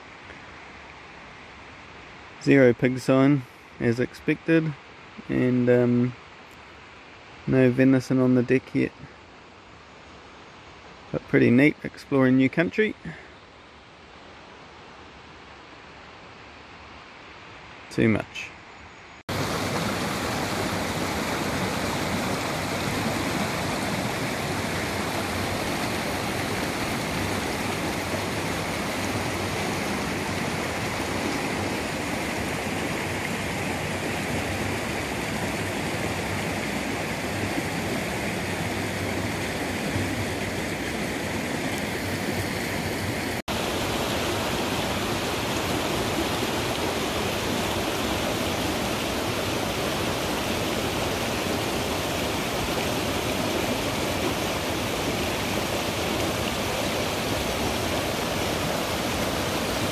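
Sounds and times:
stream rushing over rocks: 19.2s - 59.9s.

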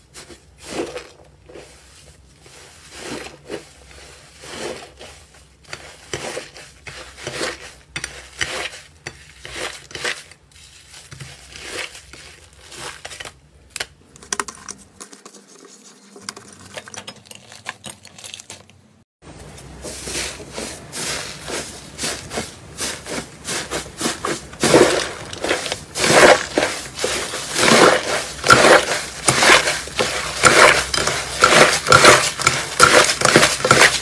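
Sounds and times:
slime crackling and squishing: 16.6s - 18.8s, 20.3s - 34.0s.

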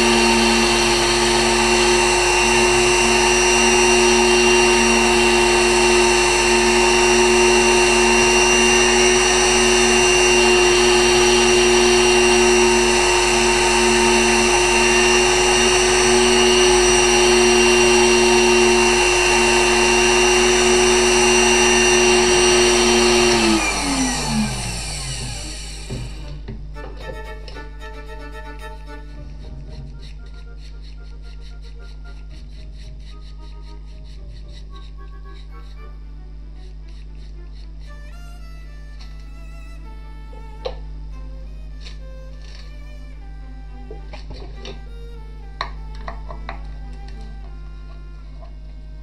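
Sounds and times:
engraving machine motor whine: 0.0s - 26.6s, 41.8s - 49.0s.

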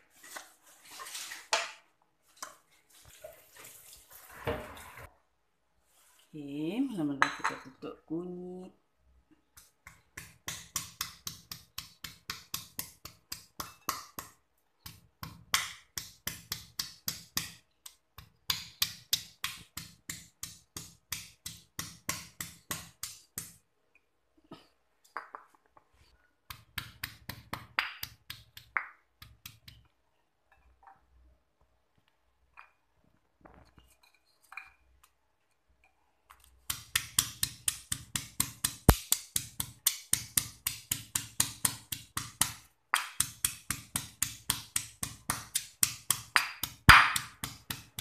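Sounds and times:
stone pestle pounding in mortar: 9.9s - 17.6s, 18.2s - 23.6s, 26.5s - 29.7s, 36.7s - 48.0s.

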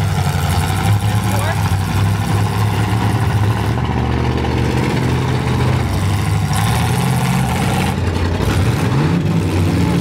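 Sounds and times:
truck engines running and revving: 0.0s - 10.0s.

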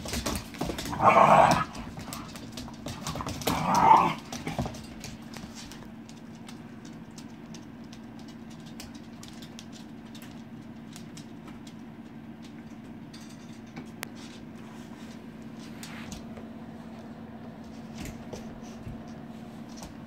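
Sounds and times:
dog claws clicking on wooden floor: 0.0s - 14.5s
steady low hum: 0.0s - 20.0s.

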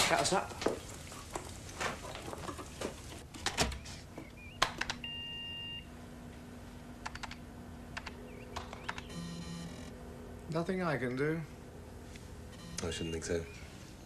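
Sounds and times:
low hum: 4.3s - 14.0s
keyboard keystroke clicks: 4.6s - 5.0s, 7.0s - 7.4s, 8.0s - 9.2s
short computer beep: 9.1s - 9.9s, 12.6s - 13.6s.

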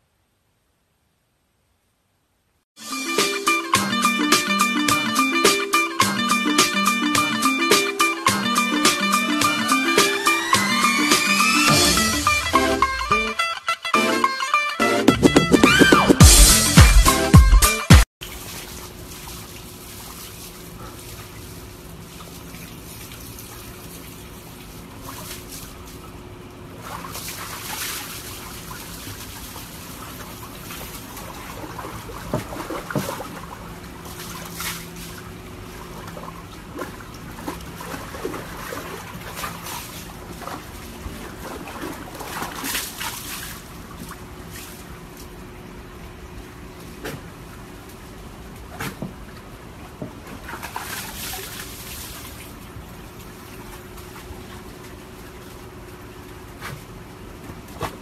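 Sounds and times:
water splashes: 18.2s - 45.5s, 46.7s - 58.0s
water sloshing in plastic tub: 18.2s - 45.6s, 46.5s - 58.0s.

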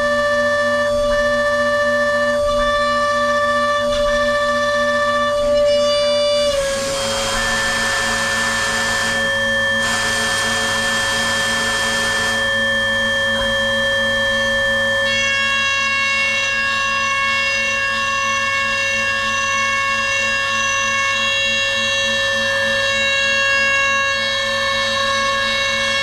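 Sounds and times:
milling spindle whining: 6.0s - 15.2s
loud hiss: 6.6s - 12.5s.

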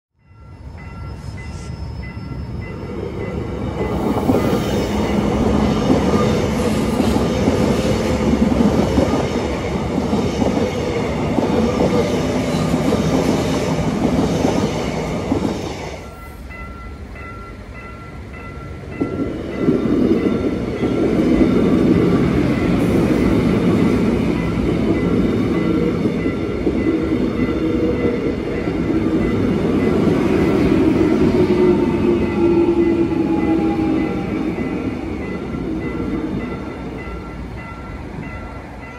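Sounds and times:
crossing warning bell dinging: 0.2s - 38.9s
electric train rolling: 0.2s - 38.9s.

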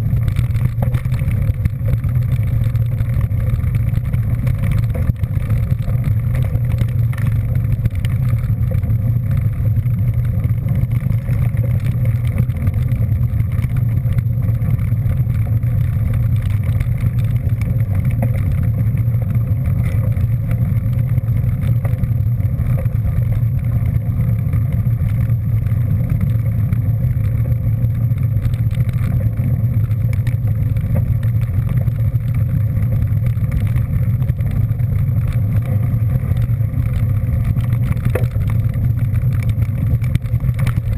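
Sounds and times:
road noise: 0.0s - 40.9s
vehicle engine rumble: 0.0s - 40.9s.

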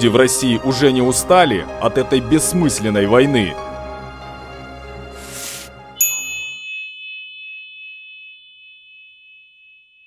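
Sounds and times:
background music: 0.0s - 6.2s
bright chime: 6.0s - 10.0s.

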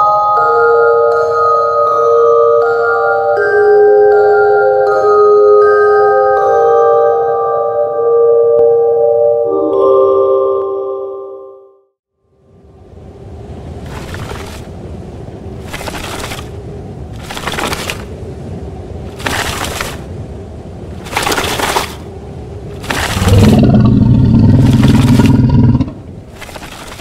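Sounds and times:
low steady rumble: 12.2s - 26.9s
loud low roar: 22.8s - 26.2s.

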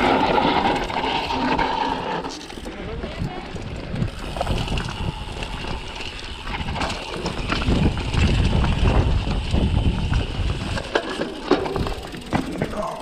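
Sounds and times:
bike rattling over bumps: 0.0s - 13.0s.

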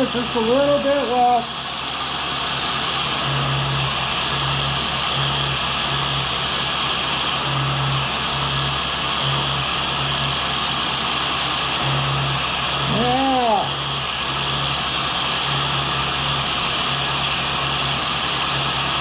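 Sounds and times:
grinder wheel grinding: 11.7s - 19.0s.

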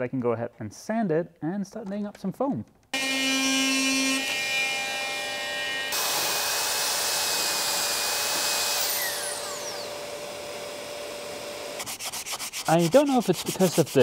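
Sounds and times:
belt sander whining: 3.0s - 12.0s
oscillating multi-tool cutting fiberglass: 3.0s - 14.0s.

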